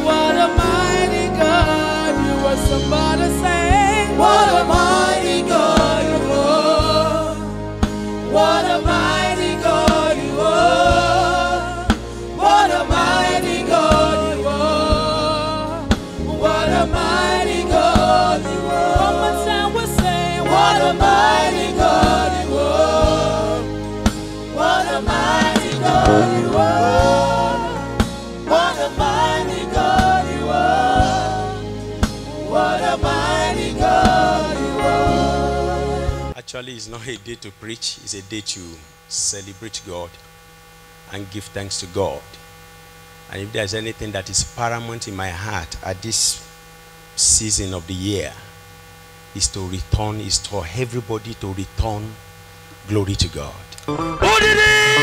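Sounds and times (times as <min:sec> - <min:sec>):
woman singing lead vocal: 0:00.0 - 0:07.5, 0:08.3 - 0:23.8, 0:24.5 - 0:36.1
instrumental backing with bass: 0:00.0 - 0:36.4, 0:53.7 - 0:55.0
backing singers: 0:03.7 - 0:07.4, 0:08.2 - 0:36.3, 0:53.8 - 0:55.0.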